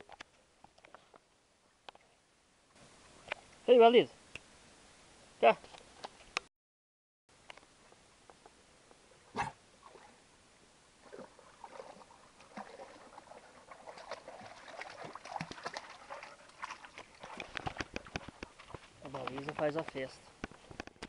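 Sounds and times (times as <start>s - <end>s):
dog moving through stream: 11.0s - 20.1s
footsteps in shallow rocky stream: 11.0s - 21.0s.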